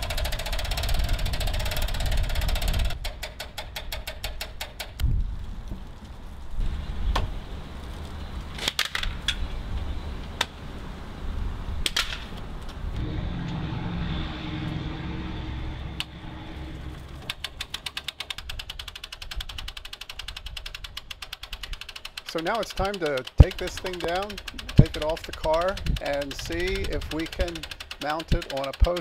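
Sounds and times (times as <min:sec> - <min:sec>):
wind rumble on microphone: 0:00.0 - 0:03.0, 0:05.0 - 0:17.3, 0:24.6 - 0:27.1
winch ratchet clicking: 0:00.0 - 0:05.0, 0:17.1 - 0:29.0.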